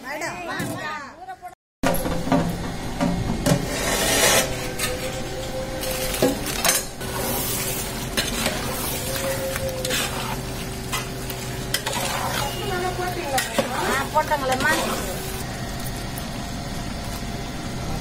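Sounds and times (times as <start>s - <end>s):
metal ladle scraping a pot: 3.5s - 15.4s
chicken sizzling in a pot: 7.0s - 17.8s.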